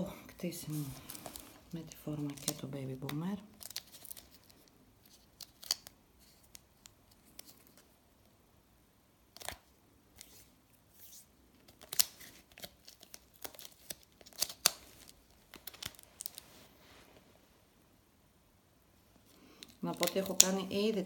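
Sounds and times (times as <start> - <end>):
paper rustling and scraping: 0.6 - 2.6, 10.2 - 17.2.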